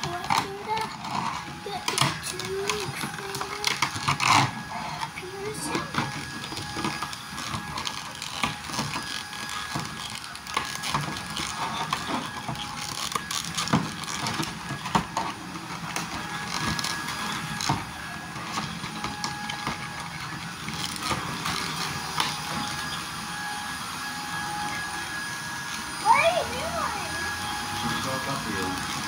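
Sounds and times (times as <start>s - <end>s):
cardboard and plastic packaging rustling: 0.0s - 23.0s.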